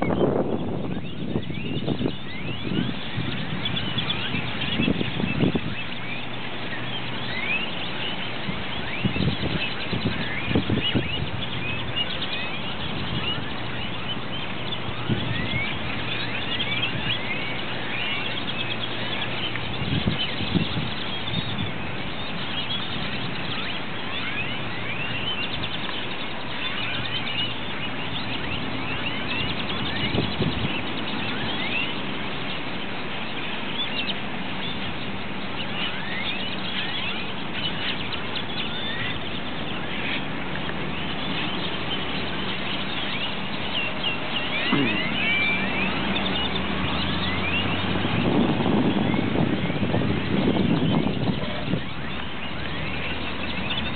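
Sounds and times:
birds chirping: 0.0s - 53.9s.

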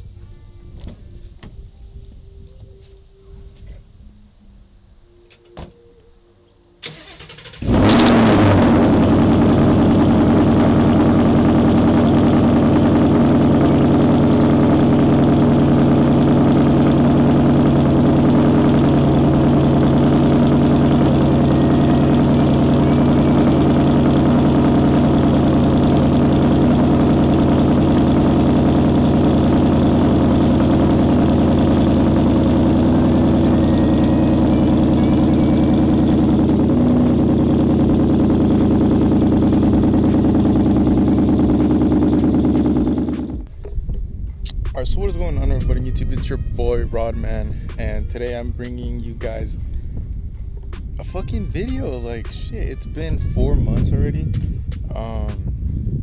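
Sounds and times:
car engine starting and idling: 6.8s - 45.9s.

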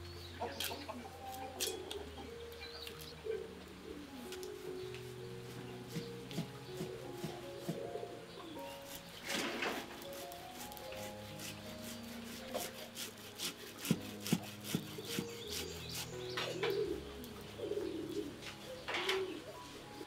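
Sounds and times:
doves cooing: 0.0s - 10.3s, 14.8s - 20.0s
soft background music: 0.0s - 20.0s
cassava scraped on wooden grater: 10.1s - 16.2s.

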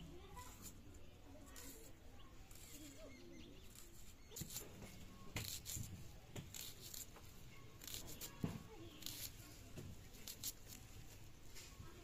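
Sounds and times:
knife slicing onion: 3.7s - 7.2s, 7.8s - 9.4s.

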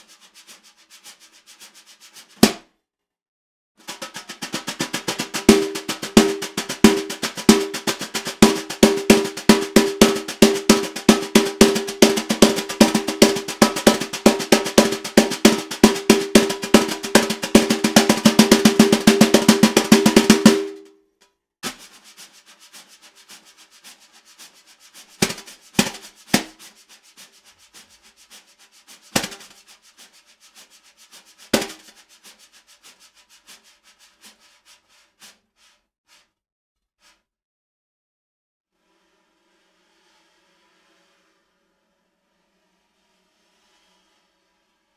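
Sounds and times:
snare drum brush strokes: 0.0s - 2.7s, 3.8s - 20.9s, 21.6s - 36.4s, 37.0s - 37.3s.

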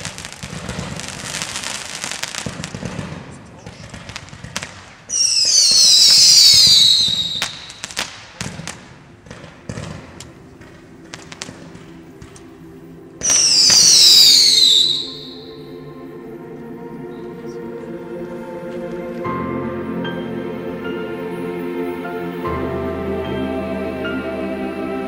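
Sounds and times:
firework cracks and pops: 0.0s - 12.6s, 13.2s - 15.4s
firework whistling shriek: 5.1s - 8.3s, 13.2s - 15.6s
faint background music: 8.5s - 25.0s.

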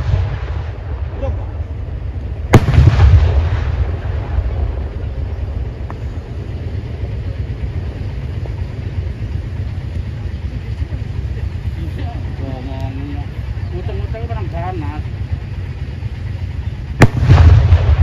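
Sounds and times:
firecracker bang with echo: 0.0s - 1.6s, 2.4s - 5.1s, 17.0s - 18.0s
steady low rumble: 0.0s - 18.0s.

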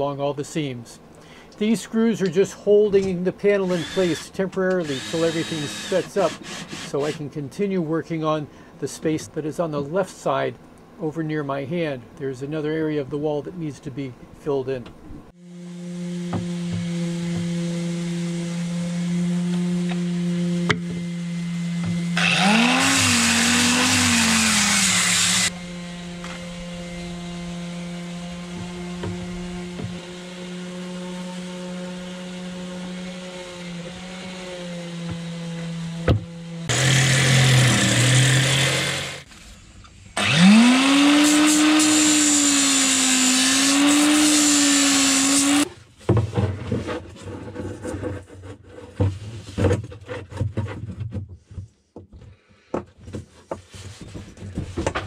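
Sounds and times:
angle grinder whining: 3.6s - 7.2s, 15.4s - 39.3s, 40.2s - 45.7s
steady low hum: 7.2s - 31.0s.

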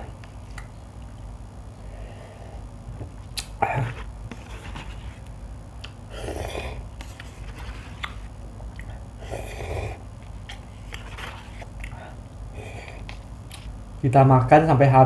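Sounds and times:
person slurping noodles: 6.1s - 8.2s, 9.2s - 10.0s.

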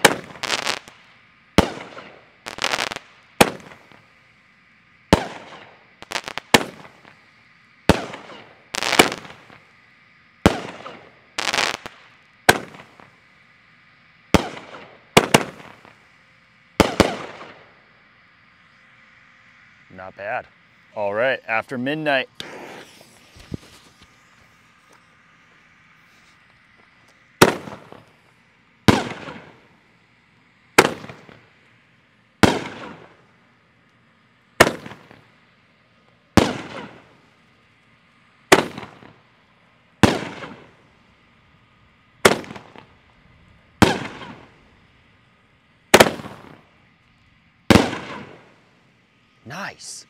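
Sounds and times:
firework bangs: 0.0s - 4.2s, 5.0s - 13.3s, 14.2s - 16.1s, 16.7s - 18.5s, 22.1s - 29.8s, 30.7s - 31.6s, 32.4s - 33.3s, 34.5s - 35.3s, 36.3s - 37.3s, 38.5s - 39.3s, 40.0s - 40.9s, 42.2s - 45.1s, 45.9s - 46.8s, 47.6s - 48.7s
firework shell bursting rumble: 0.0s - 4.2s, 5.0s - 13.2s, 14.3s - 16.1s, 16.8s - 18.5s, 26.5s - 28.2s, 28.8s - 29.8s, 30.7s - 31.6s, 34.6s - 35.3s, 36.3s - 37.2s, 38.5s - 39.3s, 40.0s - 40.9s, 42.2s - 45.2s, 45.9s - 48.6s.

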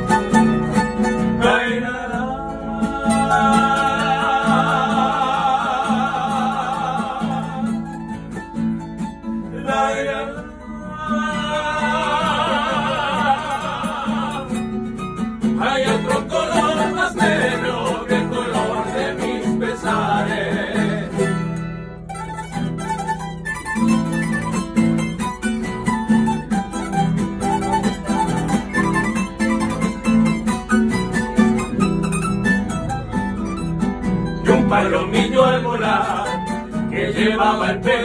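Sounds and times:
singers holding vibrato notes: 0.0s - 8.0s, 9.5s - 21.5s, 34.4s - 38.0s
guitars and bandurria playing: 0.0s - 38.0s.

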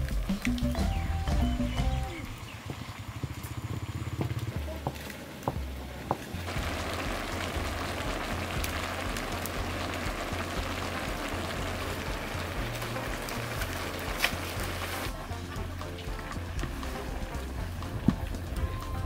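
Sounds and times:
meat sizzling in a wok: 6.5s - 19.0s.

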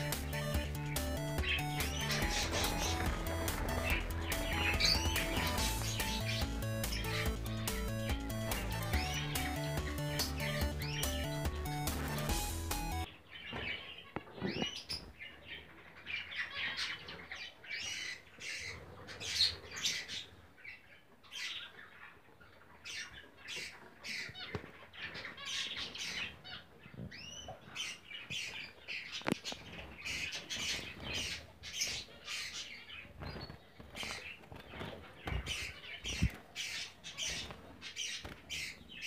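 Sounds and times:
finches calling: 0.0s - 13.7s, 22.8s - 39.0s.

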